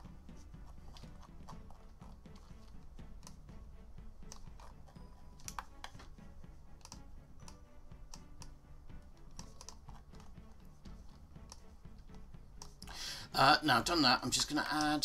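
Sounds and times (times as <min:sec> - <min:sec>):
mouse and keyboard clicks: 0:00.4 - 0:03.4, 0:04.2 - 0:08.6, 0:09.3 - 0:12.9.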